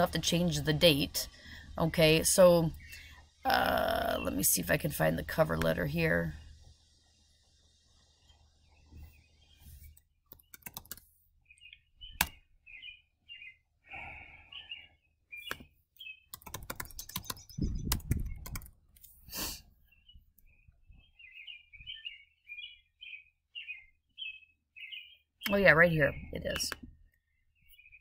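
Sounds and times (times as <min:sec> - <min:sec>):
small bird chirping: 0:00.0 - 0:28.0
typing on a keyboard: 0:10.3 - 0:11.0, 0:16.3 - 0:18.8
mouse clicks: 0:15.4 - 0:15.7.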